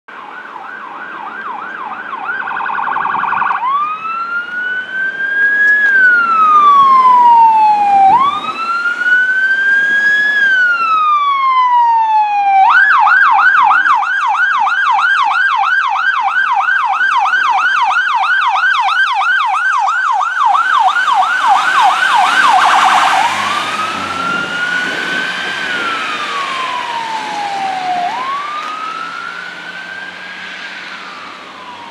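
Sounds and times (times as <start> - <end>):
fire engine siren: 0.1 - 31.9
truck engine and road noise: 0.1 - 31.9.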